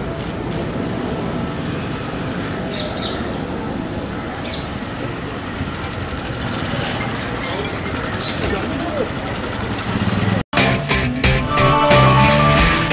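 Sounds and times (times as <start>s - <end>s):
steady traffic hum: 0.0s - 10.4s
bird chirps: 2.7s - 3.4s, 4.4s - 4.8s.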